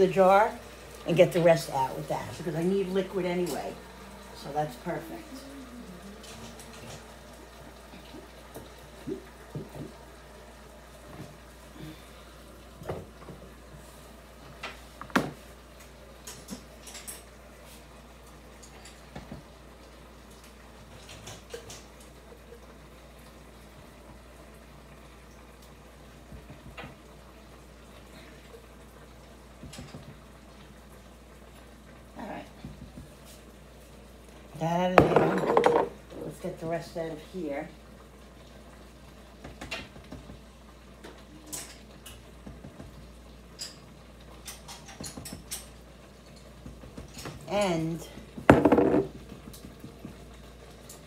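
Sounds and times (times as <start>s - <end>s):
sauce bubbling: 0.0s - 34.6s
low steady hum: 0.0s - 51.0s.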